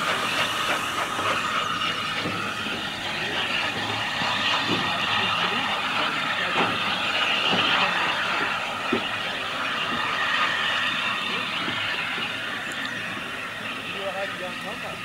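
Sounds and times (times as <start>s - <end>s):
steam locomotive rushing: 0.0s - 15.0s.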